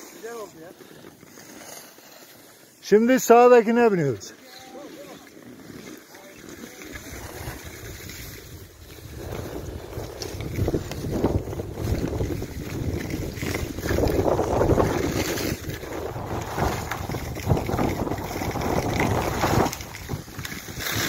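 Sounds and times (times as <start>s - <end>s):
skis hissing on snow: 0.0s - 21.0s
wind rushing over microphone: 7.0s - 21.0s.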